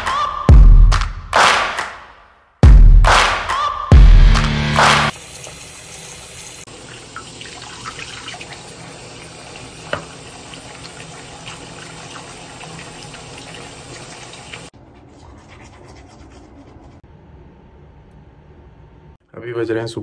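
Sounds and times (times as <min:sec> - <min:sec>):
tap running into sink: 0:09.8 - 0:10.6.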